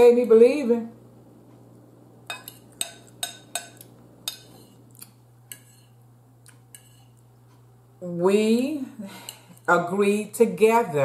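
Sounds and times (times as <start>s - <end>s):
faint steady hum: 0.0s - 11.0s
fork clinking on ceramic bowl: 2.3s - 6.0s.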